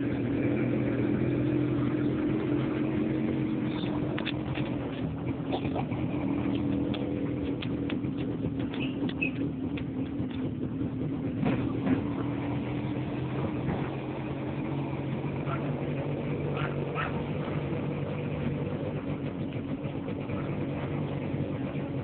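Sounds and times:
motorcycle engine droning: 0:00.0 - 0:22.0.

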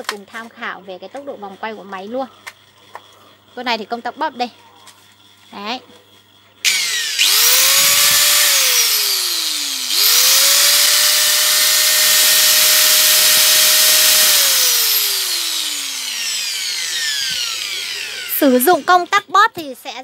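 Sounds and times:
angle grinder whining: 0:04.3 - 0:19.3.

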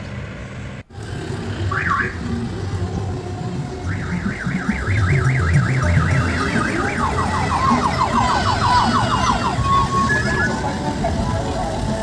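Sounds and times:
bus engines running: 0:00.0 - 0:12.0
electronic siren horn: 0:01.7 - 0:02.3, 0:03.6 - 0:10.7.

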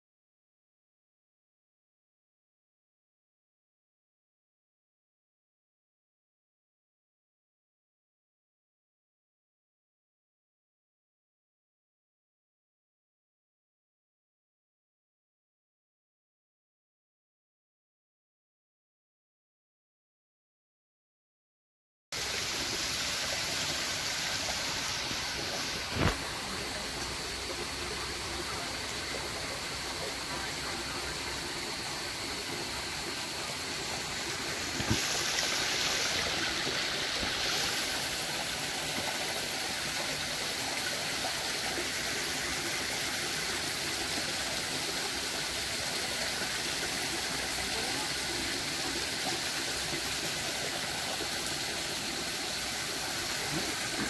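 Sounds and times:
stream running over rocks: 0:22.2 - 0:54.0.

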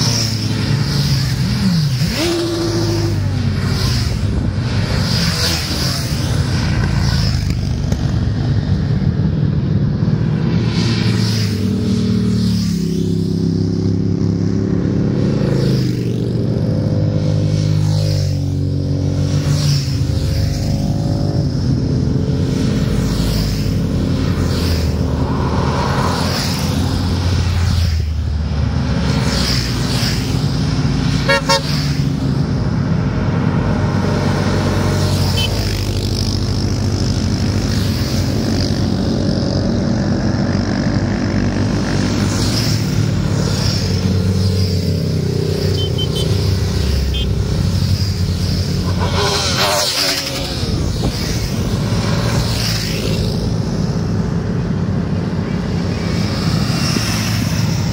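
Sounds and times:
motorcycle engines passing: 0:00.0 - 0:57.9
horn toot: 0:31.2 - 0:31.8, 0:48.8 - 0:50.7.

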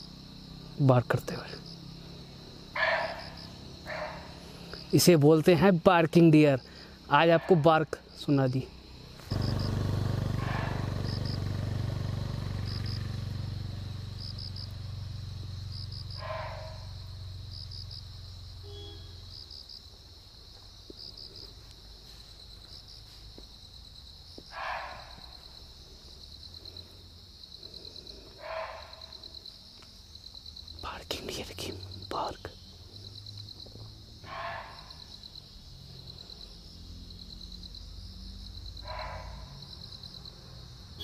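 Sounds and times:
crickets chirping: 0:00.0 - 0:41.0
deer barking: 0:02.8 - 0:04.4, 0:10.4 - 0:10.9, 0:16.2 - 0:17.0, 0:24.5 - 0:25.4, 0:28.4 - 0:29.1, 0:34.2 - 0:35.1, 0:38.8 - 0:39.6
low engine rumble: 0:09.2 - 0:18.7.

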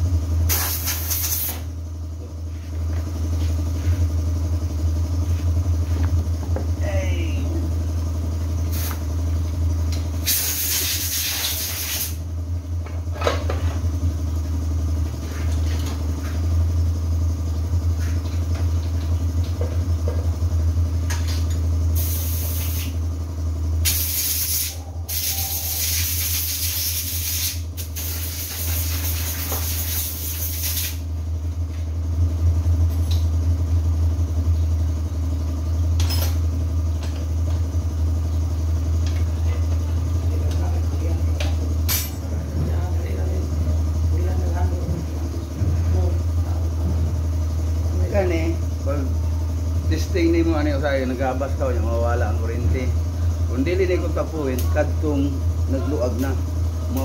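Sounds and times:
loud hissing bursts: 0:00.5 - 0:01.7, 0:10.2 - 0:12.2
chainsaw engine idling: 0:01.8 - 0:10.3, 0:12.2 - 0:22.0, 0:31.0 - 0:57.0.

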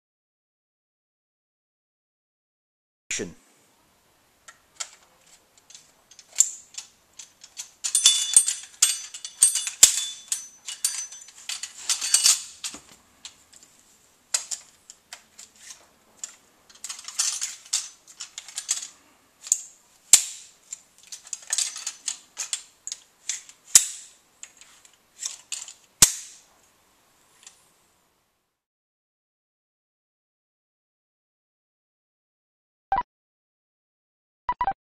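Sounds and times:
metal rods rattling and scraping: 0:04.8 - 0:13.7, 0:14.3 - 0:26.2.

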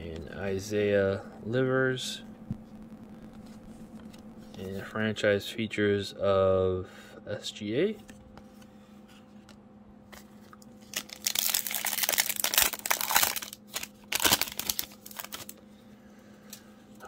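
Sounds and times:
foil wrapper crinkling and tearing: 0:10.7 - 0:15.6.

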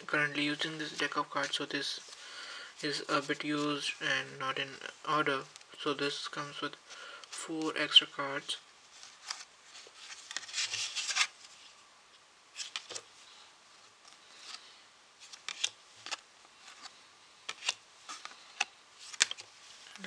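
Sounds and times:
playing cards sliding: 0:09.0 - 0:11.6, 0:14.1 - 0:19.5.

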